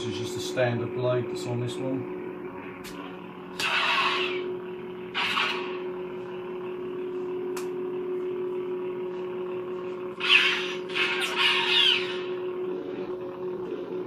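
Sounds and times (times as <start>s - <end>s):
lightsaber blade hum: 2.5s - 6.7s, 10.0s - 14.0s.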